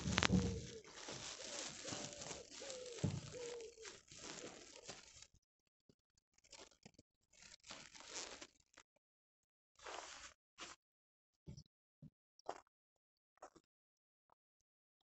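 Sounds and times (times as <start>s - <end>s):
bird calling low notes: 0.0s - 4.9s
foliage rustling and crackling: 0.0s - 5.3s, 7.4s - 8.5s.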